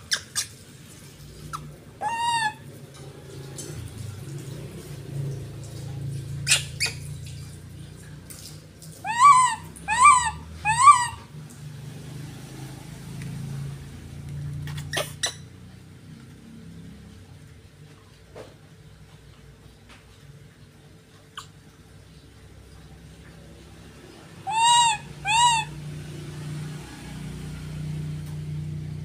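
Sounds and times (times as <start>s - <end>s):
baby monkey calls: 1.5s - 2.7s, 6.4s - 7.0s, 9.0s - 11.4s, 14.6s - 15.5s, 24.4s - 25.9s.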